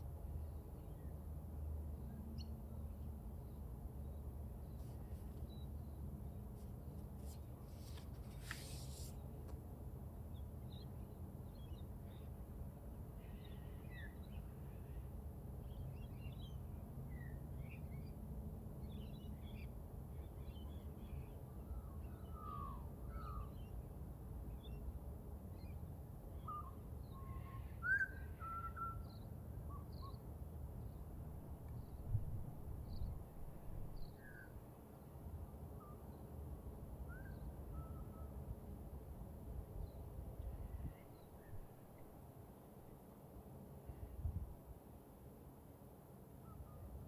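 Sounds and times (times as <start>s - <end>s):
book page turning: 6.6s - 9.2s.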